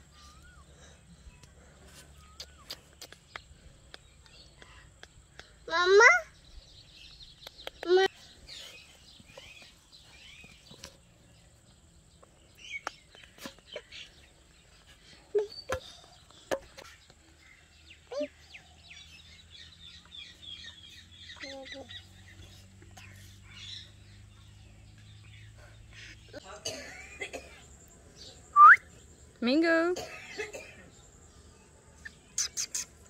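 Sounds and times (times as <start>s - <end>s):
birds chirping faintly: 0.0s - 33.0s.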